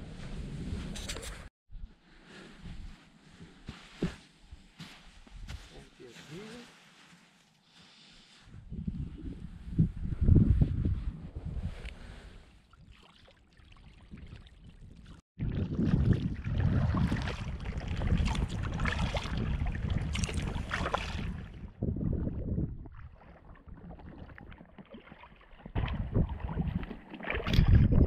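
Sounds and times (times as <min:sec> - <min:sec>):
wind rushing across microphone: 0:08.5 - 0:12.4, 0:15.4 - 0:23.0, 0:25.8 - 0:28.0
water lapping at hull: 0:12.4 - 0:21.7, 0:22.8 - 0:28.0.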